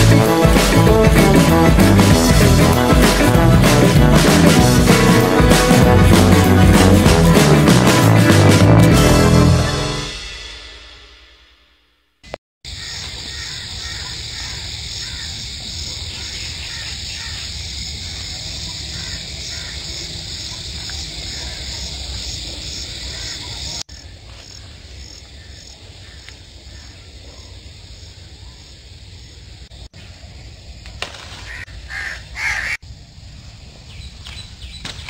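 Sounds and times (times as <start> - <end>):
birds calling: 12.7 - 27.6, 31.2 - 32.8, 33.8 - 35.0.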